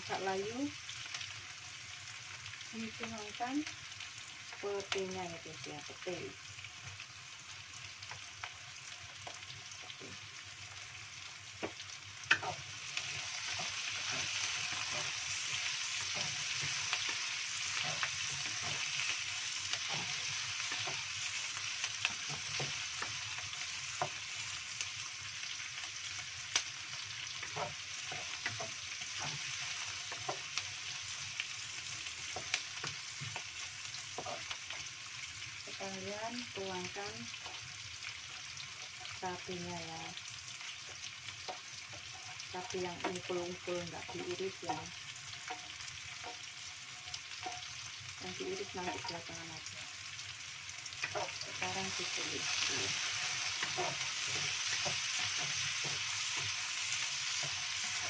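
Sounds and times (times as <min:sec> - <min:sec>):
food sizzling in hot oil: 0:00.0 - 0:58.0
wooden spatula scraping a wok: 0:11.6 - 0:24.2, 0:27.3 - 0:30.7, 0:32.0 - 0:34.8, 0:51.0 - 0:58.0.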